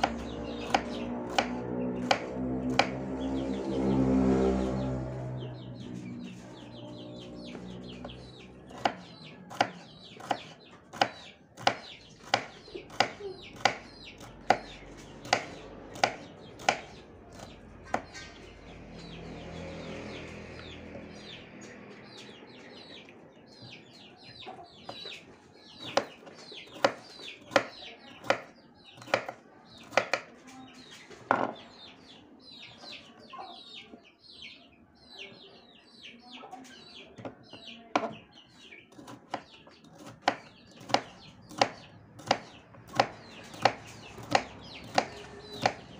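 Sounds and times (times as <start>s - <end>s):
knife chopping on wooden board: 0.0s - 3.0s, 8.7s - 18.2s, 25.8s - 30.3s, 38.9s - 45.9s.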